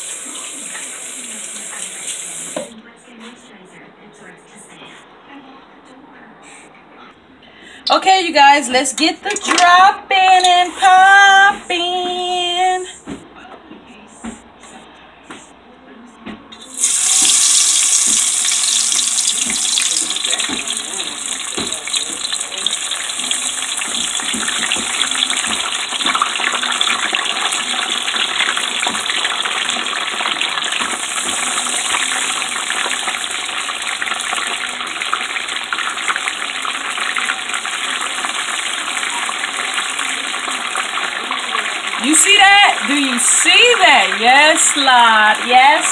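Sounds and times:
food deep-frying in hot oil: 0:16.6 - 0:45.9.

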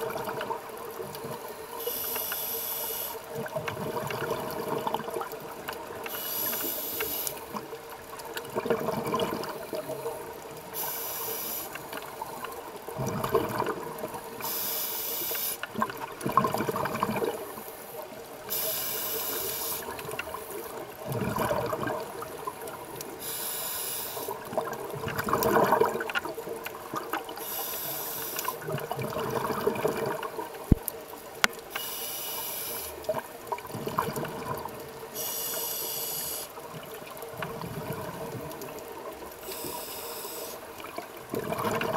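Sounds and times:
regulator hissing inhale: 0:01.8 - 0:03.3, 0:06.1 - 0:07.5, 0:10.7 - 0:11.9, 0:14.4 - 0:15.7, 0:17.5 - 0:20.7, 0:23.2 - 0:24.4, 0:27.4 - 0:28.6, 0:31.7 - 0:33.0, 0:35.1 - 0:36.6, 0:39.4 - 0:40.6
bubbling exhaled air: 0:08.4 - 0:11.7, 0:12.9 - 0:17.6, 0:18.5 - 0:26.2, 0:27.3 - 0:30.4, 0:33.0 - 0:35.3, 0:39.5 - 0:41.9.

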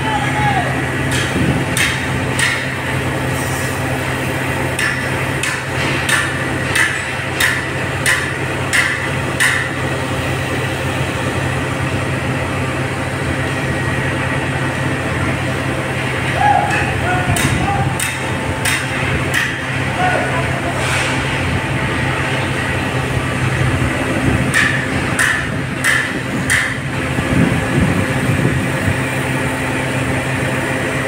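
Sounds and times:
low hum: 0:00.0 - 0:31.0
hammer striking metal: 0:01.1 - 0:02.8, 0:04.8 - 0:09.8, 0:16.7 - 0:19.8, 0:24.5 - 0:26.8.

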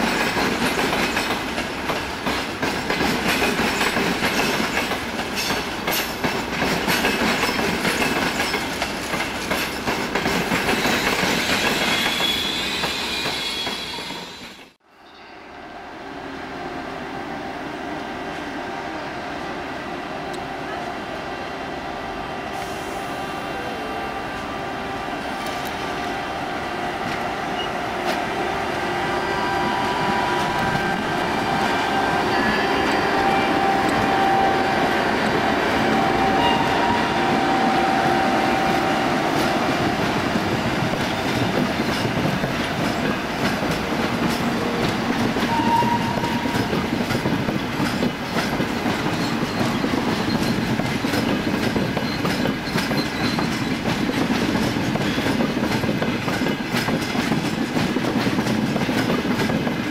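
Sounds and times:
train whine: 0:00.0 - 0:59.9
train wheels squealing: 0:10.7 - 0:15.7, 0:45.4 - 0:46.8, 0:48.3 - 0:55.7.

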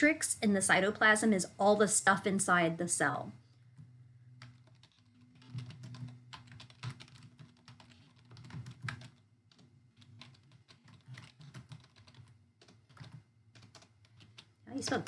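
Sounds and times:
keyboard typing clicks: 0:04.4 - 0:15.0.

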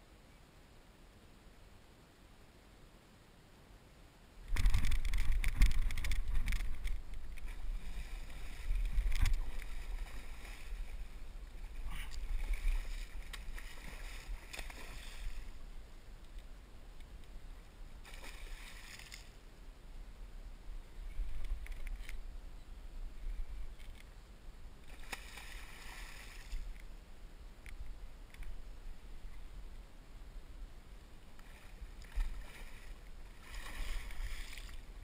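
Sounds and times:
fish thrashing and splashing water: 0:12.2 - 0:15.4, 0:32.0 - 0:34.8.

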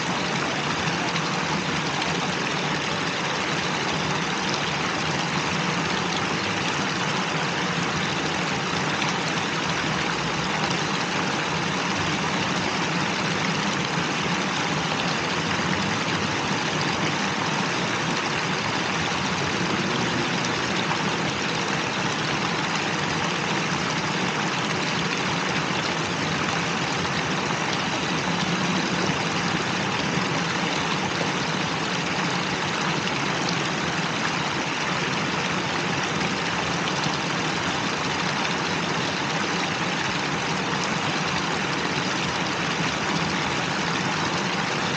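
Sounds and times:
fountain water splashing: 0:00.0 - 0:44.9.

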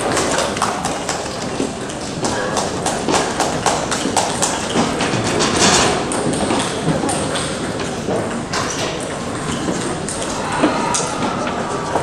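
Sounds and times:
small crowd clapping: 0:00.0 - 0:04.9, 0:10.1 - 0:12.0
voices: 0:10.1 - 0:12.0.

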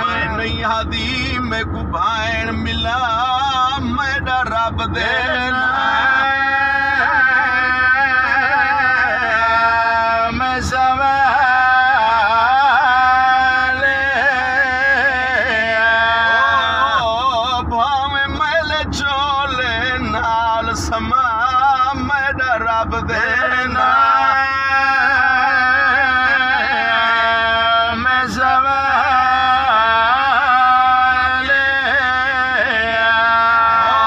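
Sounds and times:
car road noise: 0:00.0 - 0:34.0
man singing unaccompanied: 0:00.0 - 0:34.0.

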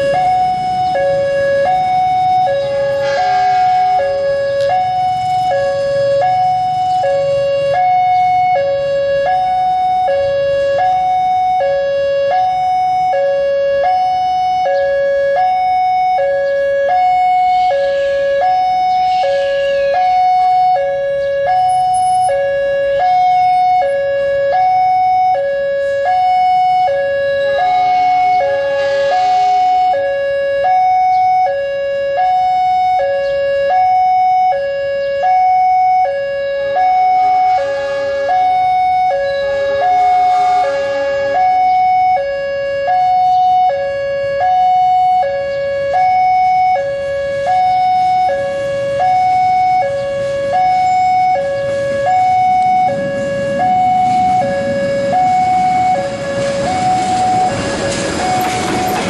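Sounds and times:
moving train noise: 0:00.0 - 0:13.1, 0:25.8 - 0:30.2, 0:37.1 - 0:42.1, 0:48.1 - 0:59.0
two-tone warning alarm: 0:00.0 - 0:59.0.

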